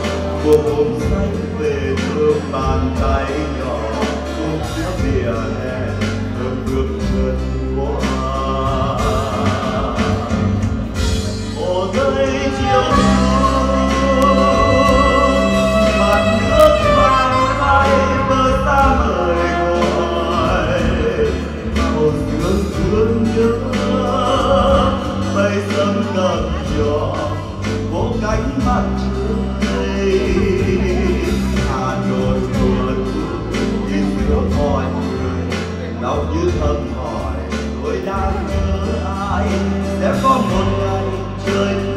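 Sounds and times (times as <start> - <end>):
acoustic guitar: 0.0 - 41.9
man singing ballad into microphone: 0.0 - 41.9
saxophone: 12.2 - 21.4.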